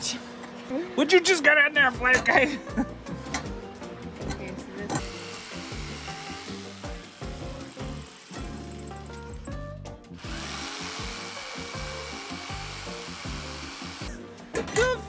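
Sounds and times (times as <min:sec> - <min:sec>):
background music: 0:00.8 - 0:15.0
power tool on wood: 0:05.0 - 0:08.8, 0:10.2 - 0:14.2.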